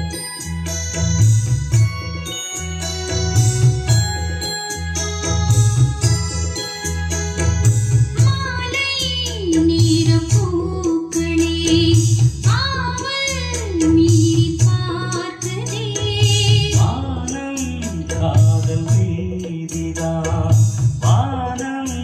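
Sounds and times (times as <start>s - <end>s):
woman singing: 8.2s - 17.4s.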